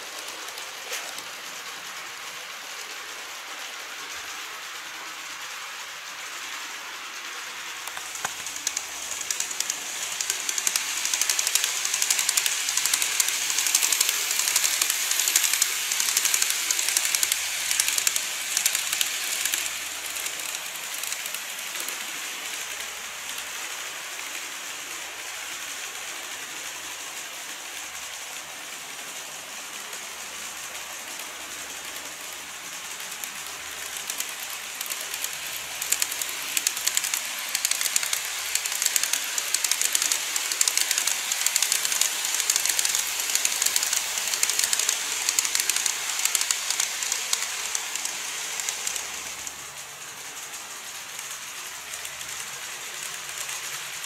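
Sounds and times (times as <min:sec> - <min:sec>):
model train wheels rattling: 0:00.0 - 0:54.0.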